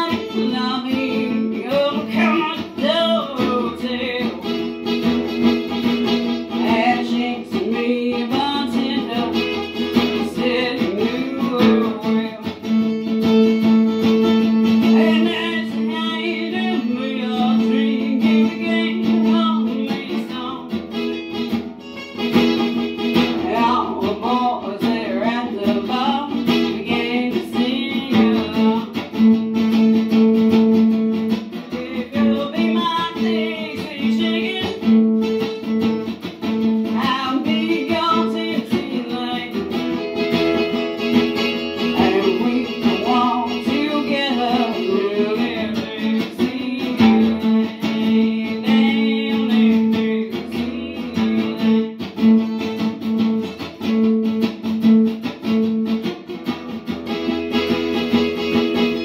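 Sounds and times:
person singing: 0:00.0 - 0:05.0, 0:06.0 - 0:20.8, 0:23.1 - 0:29.2, 0:31.4 - 0:35.0, 0:36.8 - 0:40.4, 0:41.6 - 0:52.8
acoustic guitar strumming: 0:00.0 - 0:59.0.

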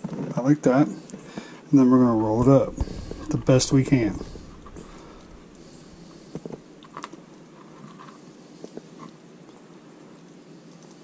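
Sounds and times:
low room hum: 0:01.0 - 0:08.0.

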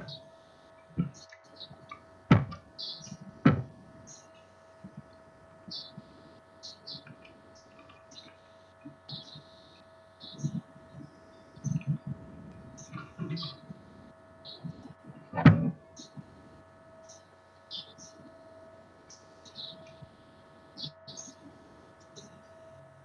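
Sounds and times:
faint scattered noises: 0:00.0 - 0:23.0
steady electrical hum: 0:00.0 - 0:23.0.

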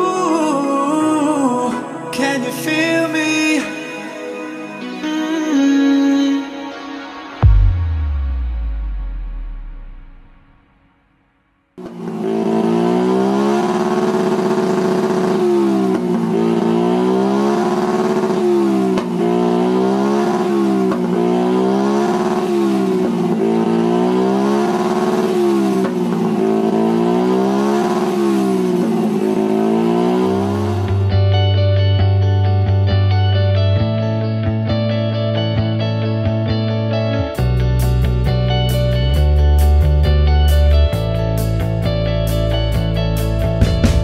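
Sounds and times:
scooter engine revving: 0:11.8 - 0:31.3.

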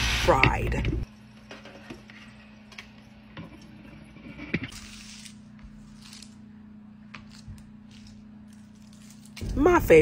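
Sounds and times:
onion skin being peeled: 0:04.7 - 0:09.5.

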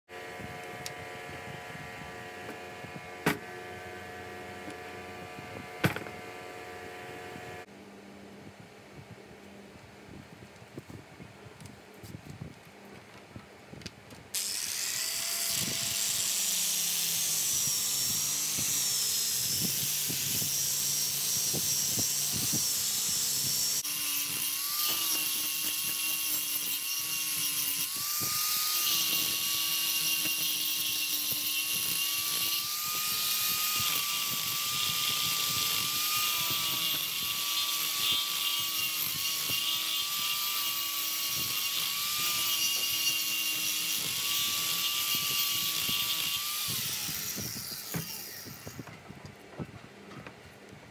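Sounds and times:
angle grinder sanding wood: 0:14.4 - 0:48.9.

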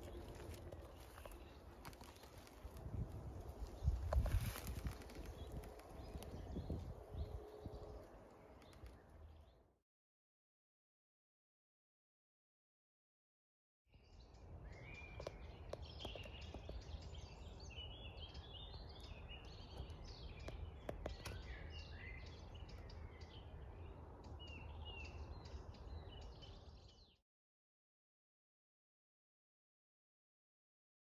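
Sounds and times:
songbirds chirping: 0:00.0 - 0:09.7, 0:13.9 - 0:27.2.

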